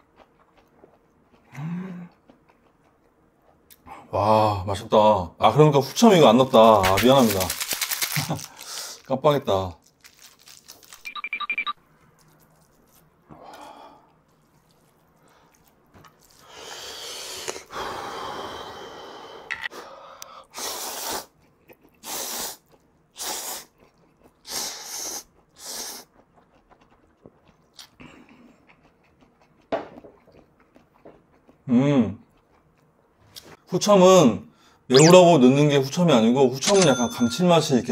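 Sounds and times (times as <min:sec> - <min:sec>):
noodles slurped loudly: 0:06.7 - 0:09.1.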